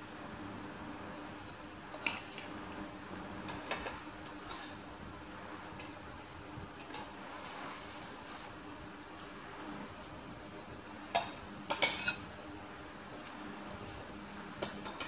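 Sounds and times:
cutlery clinking on ceramic bowl: 11.2s - 12.3s.

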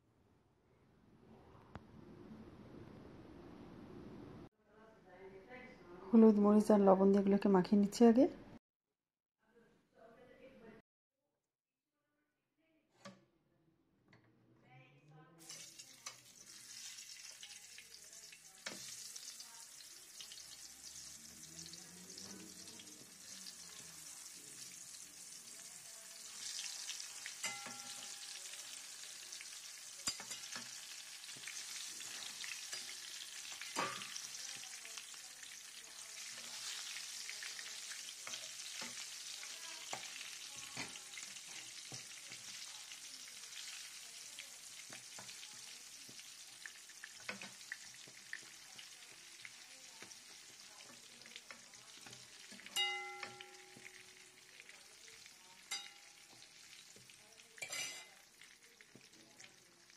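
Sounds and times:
slices frying in hot oil: 15.4s - 59.9s.

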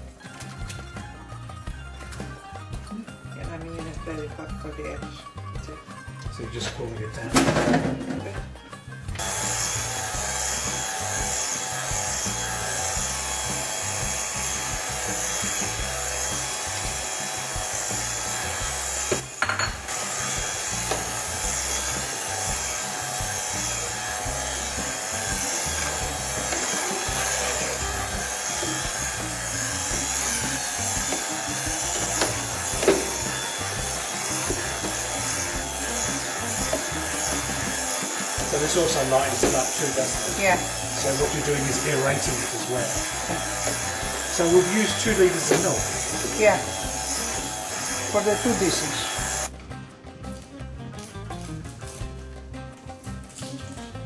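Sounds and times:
utensil scraping a pot: 19.0s - 47.4s.

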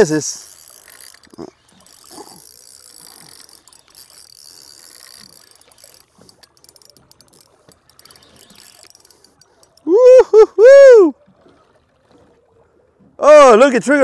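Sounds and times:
fishing reel ticking whir: 0.0s - 10.4s.

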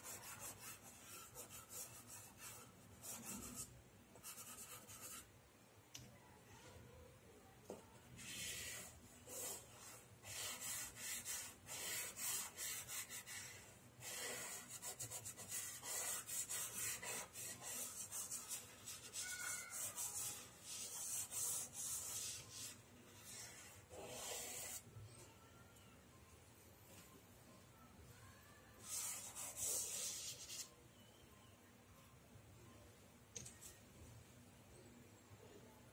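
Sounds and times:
pastel scratching on paper: 0.0s - 5.3s, 8.2s - 24.8s, 28.8s - 30.7s.

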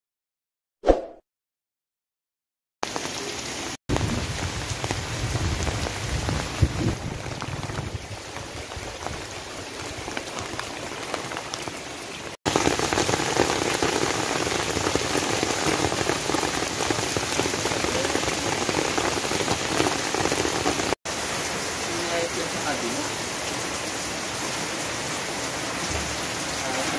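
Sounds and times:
heavy rain: 2.8s - 26.9s
rainwater rushing over gravel: 2.8s - 26.9s.

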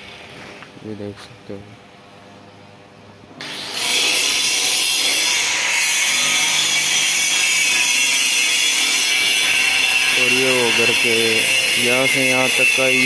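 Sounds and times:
angle grinder grinding steel: 3.4s - 13.0s.

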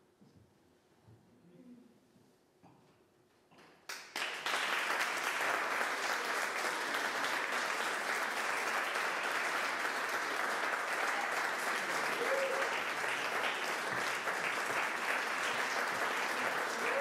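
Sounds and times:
audience applause: 3.9s - 17.0s.

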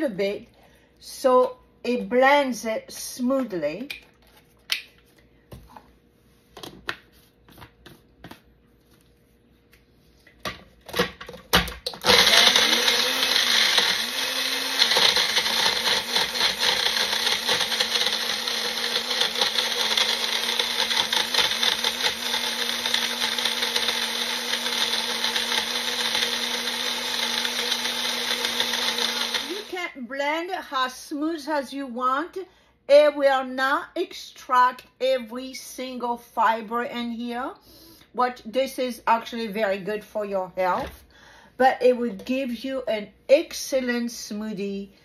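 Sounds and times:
blender motor running: 11.9s - 29.8s.

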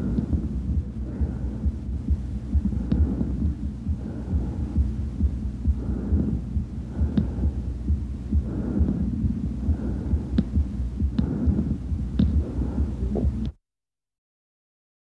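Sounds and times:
low thuds: 0.0s - 13.5s
breathing through a stethoscope: 2.7s - 4.9s, 5.7s - 7.8s, 8.4s - 10.6s, 11.2s - 13.2s.

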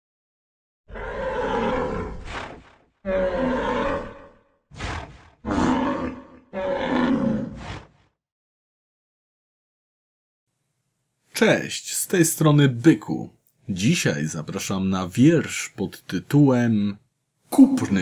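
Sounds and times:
bull bellowing: 0.9s - 7.6s.

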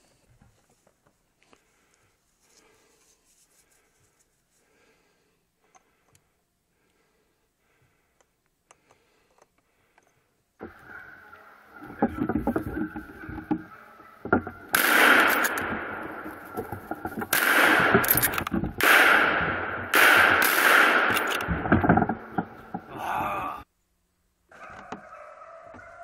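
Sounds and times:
rifle shots with echo: 14.7s - 16.2s, 17.3s - 18.2s, 18.8s - 22.4s.

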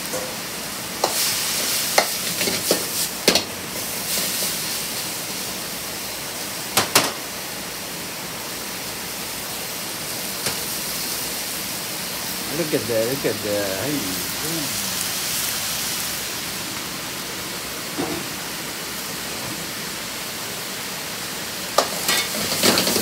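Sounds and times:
food sizzling in a wok: 0.0s - 23.0s.

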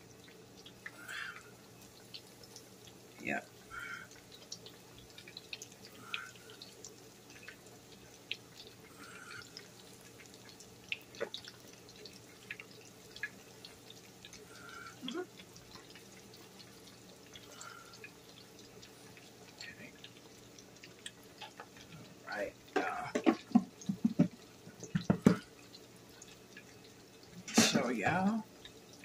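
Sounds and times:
wings deep-frying in oil: 0.0s - 29.0s
oil pops and crackles: 4.1s - 14.6s, 15.3s - 22.0s, 22.7s - 27.8s.

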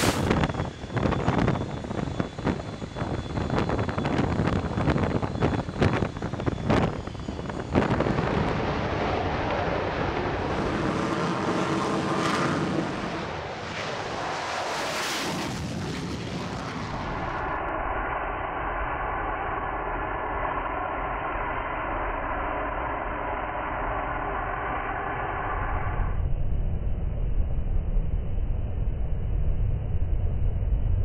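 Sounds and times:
hiss surges: 0.0s - 0.4s
sharp bang: 0.0s - 0.4s
dull engine drone: 0.0s - 31.0s
jet engine noise: 0.0s - 31.0s.

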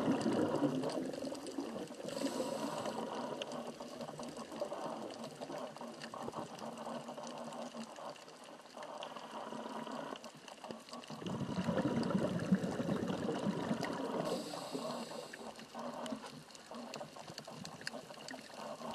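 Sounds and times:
underwater hiss: 0.0s - 4.2s, 11.6s - 16.3s
exhaled bubbles gurgling: 0.0s - 18.9s
faint clicks: 0.2s - 11.2s, 13.6s - 18.9s
diver breathing through regulator: 1.9s - 5.1s, 13.3s - 16.3s.

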